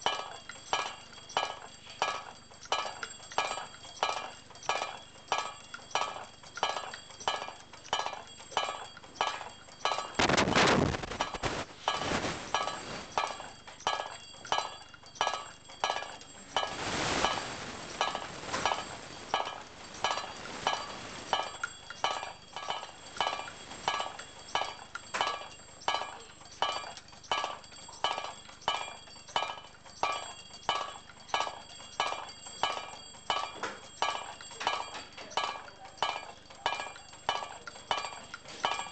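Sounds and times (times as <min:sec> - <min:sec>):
small brass bells ringing: 0:00.0 - 0:38.9
bursts of noise: 0:10.2 - 0:13.2.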